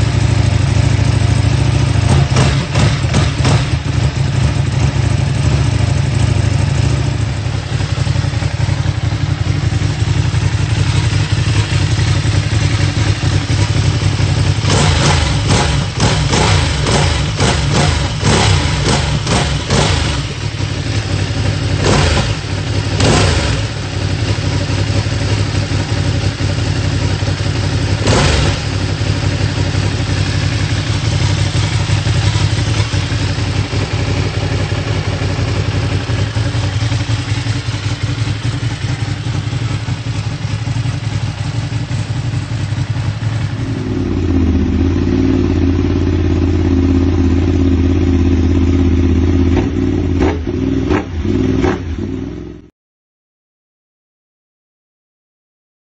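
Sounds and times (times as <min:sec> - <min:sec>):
motorcycle engine deep idle: 0:00.0 - 0:52.6
motorcycle engine running loud: 0:00.0 - 0:52.7
sharp exhaust pops: 0:49.5 - 0:51.9.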